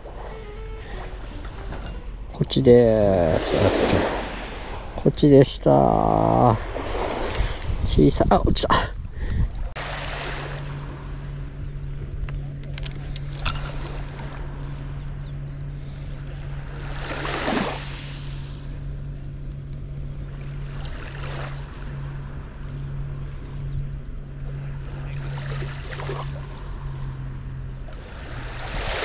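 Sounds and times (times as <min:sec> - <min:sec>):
steady low hum: 0:00.0 - 0:29.0
small waves lapping on sand: 0:02.5 - 0:08.0, 0:09.5 - 0:12.0, 0:15.8 - 0:19.2, 0:20.1 - 0:23.4, 0:24.4 - 0:29.0.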